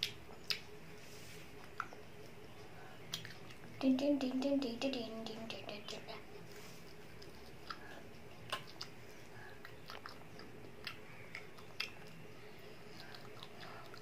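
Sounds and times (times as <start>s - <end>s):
child chewing and biting: 3.0s - 3.8s, 6.4s - 14.0s.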